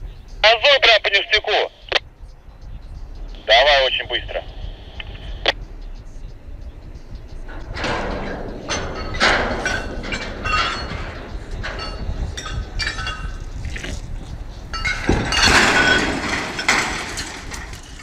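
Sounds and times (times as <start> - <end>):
metallic clanks and screeching: 4.4 - 18.0
tower crashing to ground: 7.7 - 13.4, 14.7 - 18.0.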